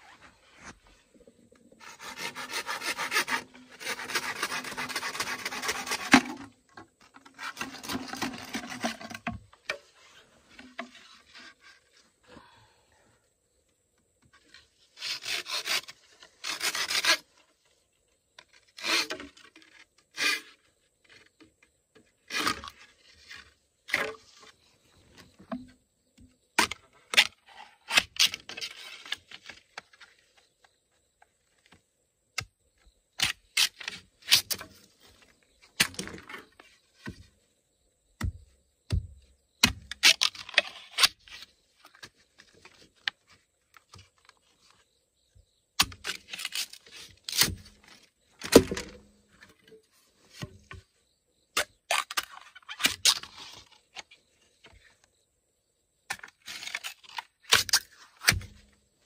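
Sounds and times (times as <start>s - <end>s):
sharp knocks clicks and scrapes: 1.5s - 11.8s.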